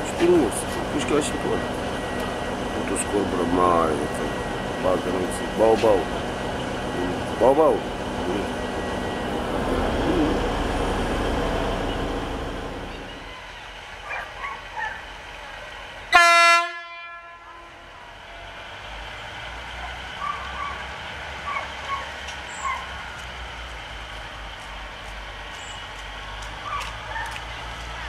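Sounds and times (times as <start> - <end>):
diesel engine rumble: 0.0 - 16.2, 17.5 - 28.0
train horn toot: 16.1 - 18.1.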